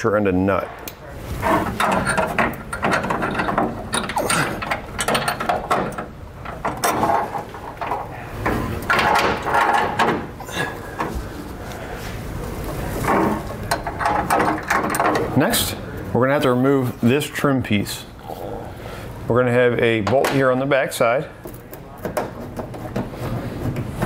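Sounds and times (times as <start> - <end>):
metal washers and nuts clinking: 1.4 - 10.4.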